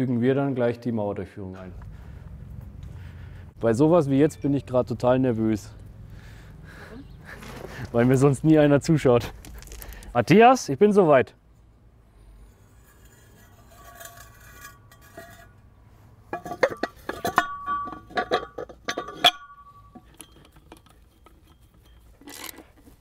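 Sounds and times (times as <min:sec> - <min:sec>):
metal tool clinking: 0:12.9 - 0:15.6, 0:16.3 - 0:23.0.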